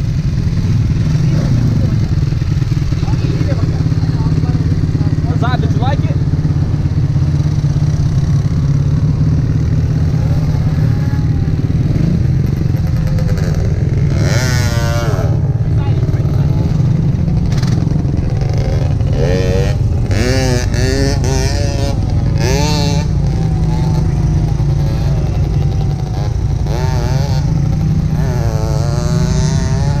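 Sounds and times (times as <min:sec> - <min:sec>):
off-road engines idling and revving: 0:00.0 - 0:30.0.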